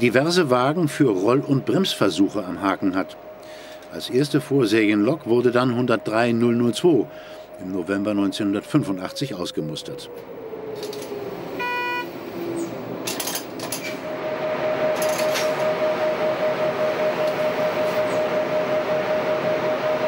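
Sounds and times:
locomotive whine falling in pitch: 0.0 - 20.0
passing electric train: 0.0 - 20.0
pulsing hum: 0.0 - 20.0
short horn-like note: 11.6 - 12.2.

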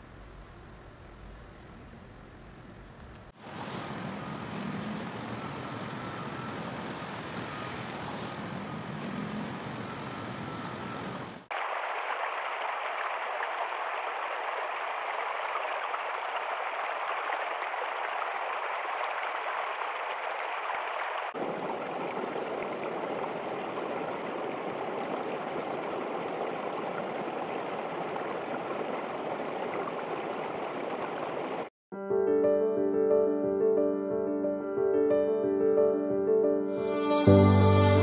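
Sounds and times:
stream rushing over rocks: 3.4 - 31.7
water spilling over cascade: 3.4 - 31.7.

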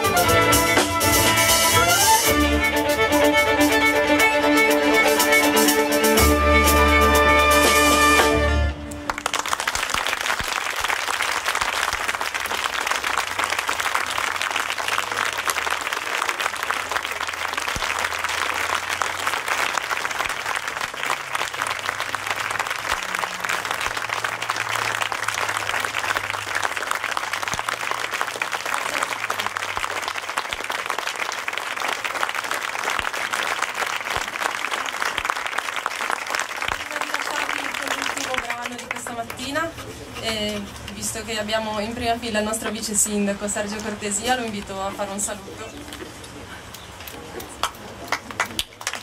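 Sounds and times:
audience applauding: 8.2 - 41.0, 45.8 - 49.0.

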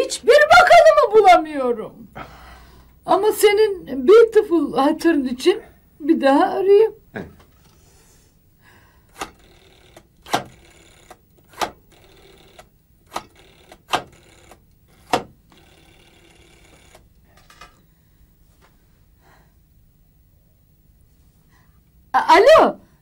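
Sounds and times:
dial whirring back: 9.0 - 17.9
rotary dial clicks: 9.1 - 17.8.

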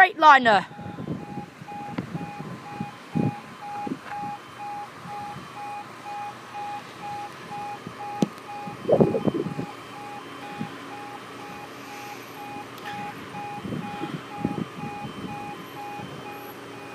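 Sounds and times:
electronic alarm beeping: 0.6 - 16.9
short low thumps: 8.8 - 9.7.

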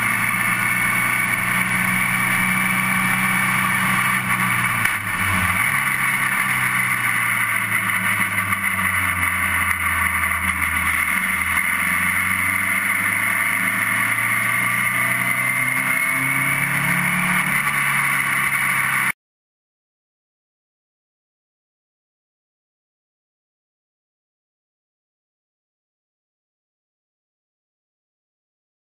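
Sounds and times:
racing car engine: 0.0 - 19.2.

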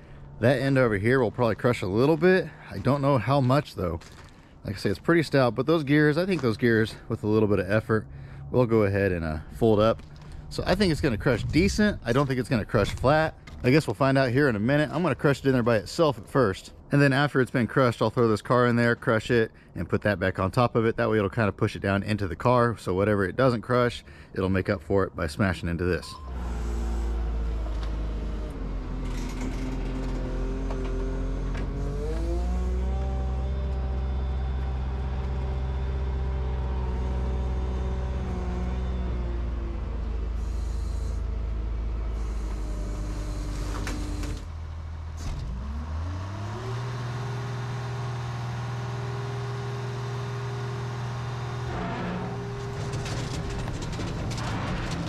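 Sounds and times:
heavy equipment engine running: 0.0 - 15.6, 26.2 - 55.0.

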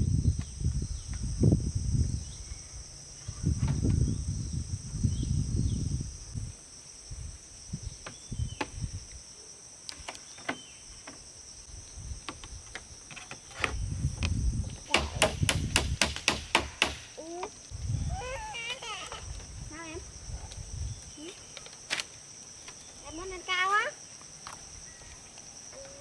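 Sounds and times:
insects calling: 0.0 - 26.0
sharp knocks: 14.9 - 17.1.

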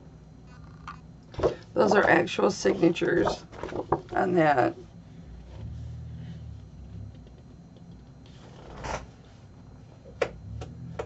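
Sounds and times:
low rumble: 5.1 - 7.6.

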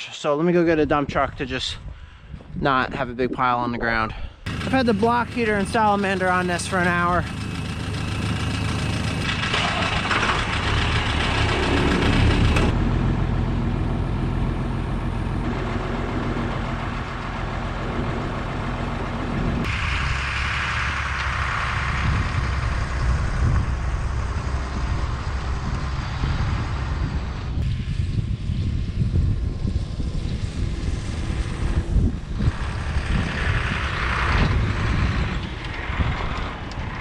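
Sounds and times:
truck engine idling: 4.5 - 27.6, 31.2 - 37.0
rushing noise: 4.5 - 37.0.

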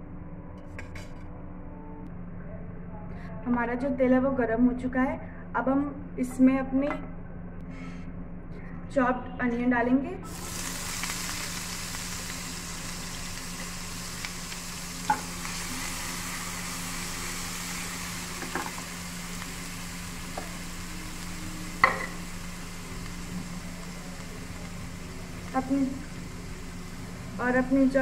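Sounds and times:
onions sizzling in oil: 10.3 - 28.0.

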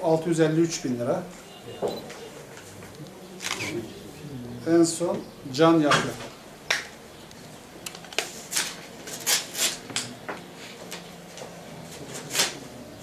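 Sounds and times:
paper rustling and crinkling: 7.9 - 12.8.

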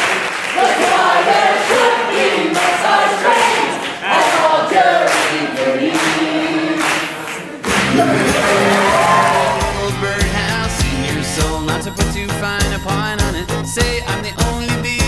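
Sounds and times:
group singing together: 0.3 - 10.4.

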